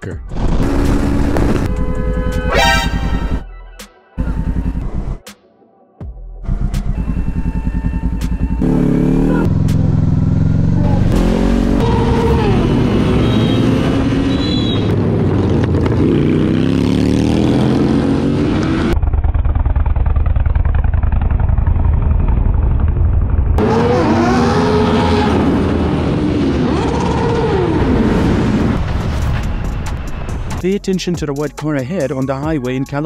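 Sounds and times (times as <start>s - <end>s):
motorcycle engines revving: 0.4s - 3.4s, 6.6s - 19.0s, 23.6s - 28.8s.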